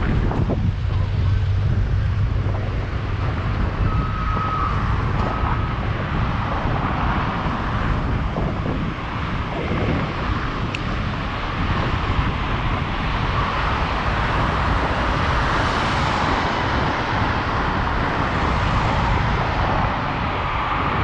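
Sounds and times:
road traffic passing: 0.0 - 21.0
wind rumble on camera: 0.0 - 21.0.

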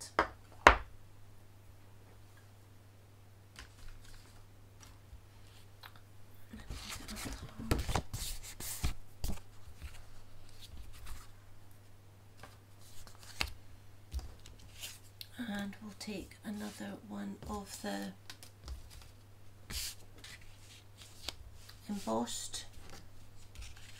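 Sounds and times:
paper rustling and sliding: 6.6 - 11.3, 14.2 - 15.1, 18.4 - 22.1, 22.7 - 23.9.

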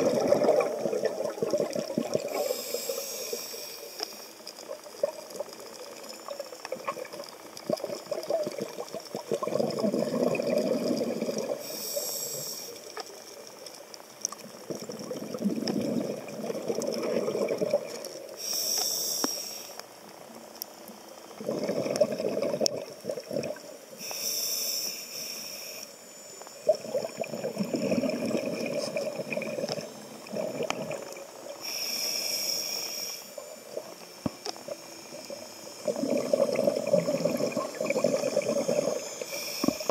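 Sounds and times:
exhale bubbling underwater: 0.0 - 3.4, 4.7 - 12.5, 14.6 - 18.2, 21.4 - 23.8, 26.6 - 31.6, 34.6 - 39.9
regulator inhale hiss: 2.2 - 4.7, 10.8 - 13.2, 17.9 - 20.1, 23.6 - 39.9.

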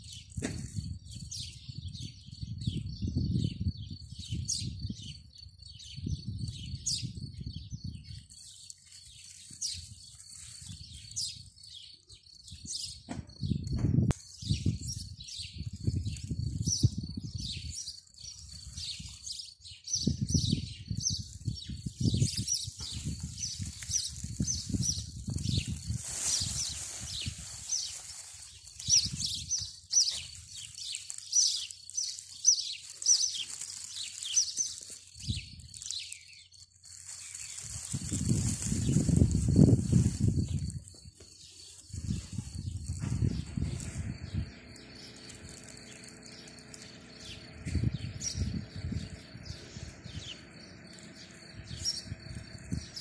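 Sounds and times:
songbirds chirping: 0.0 - 53.0
wind buffeting microphone: 0.3 - 8.4, 9.6 - 29.8, 35.2 - 35.8, 37.6 - 53.0.

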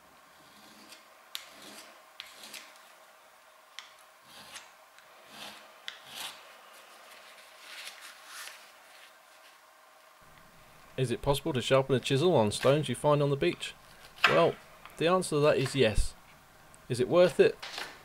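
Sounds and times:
chisel scraping on stone: 0.4 - 2.7, 4.2 - 4.7, 5.3 - 6.4.

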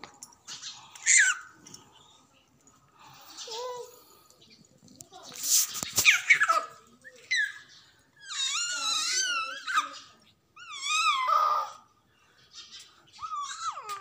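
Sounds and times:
baby squealing: 13.2 - 14.0.

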